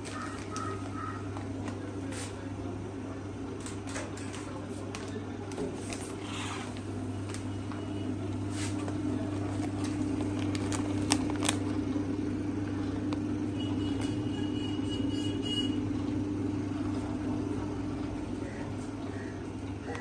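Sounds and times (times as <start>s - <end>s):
plastic film crinkling: 0.0s - 2.2s, 8.7s - 11.8s
sealer motor hum: 0.0s - 20.0s.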